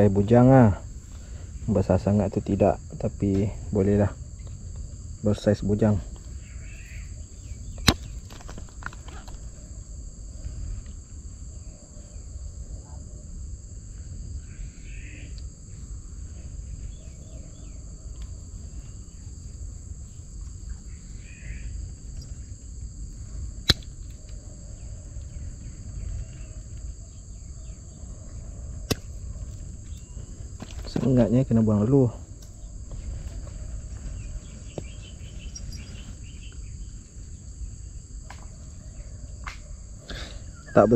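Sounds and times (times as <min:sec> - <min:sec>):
insect chorus: 0:00.0 - 0:40.9
sharp clicks: 0:23.6 - 0:24.0.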